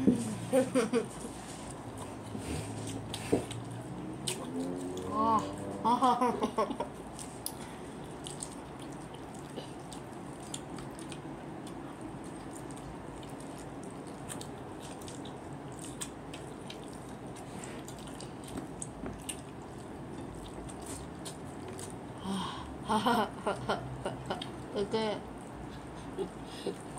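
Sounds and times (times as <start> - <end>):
low room hum: 0.0 - 26.9
chewing and lip smacking: 1.7 - 5.6, 6.9 - 22.1.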